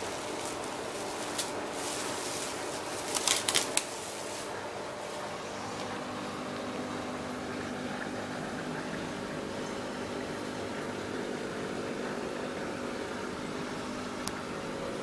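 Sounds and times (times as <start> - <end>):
plastic sheeting crinkling: 0.0 - 5.4
steady mechanical hum: 0.0 - 15.0.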